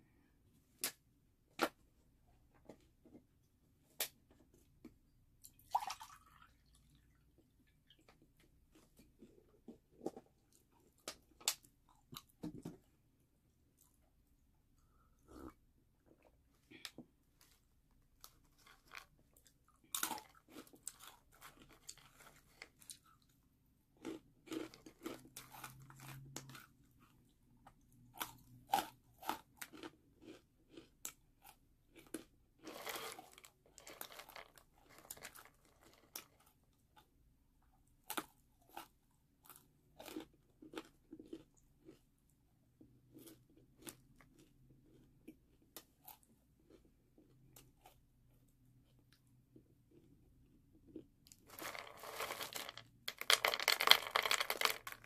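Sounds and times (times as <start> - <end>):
crunchy snack being chewed: 18.2 - 23.4, 24.0 - 37.1, 38.0 - 42.1, 42.8 - 55.0.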